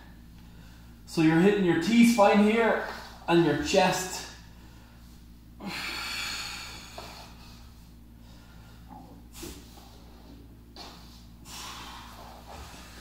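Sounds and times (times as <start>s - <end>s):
faint low hum: 0.0s - 13.0s
man exhaling hard: 11.4s - 13.0s.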